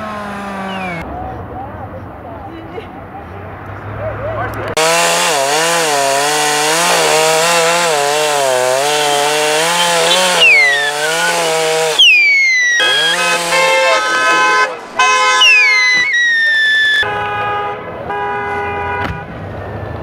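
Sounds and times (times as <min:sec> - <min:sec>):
chainsaw cutting wood: 0:00.0 - 0:01.0, 0:04.8 - 0:14.4.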